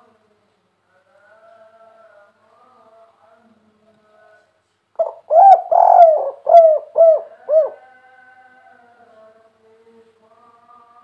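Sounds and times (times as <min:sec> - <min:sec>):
dove cooing: 0:05.0 - 0:07.8.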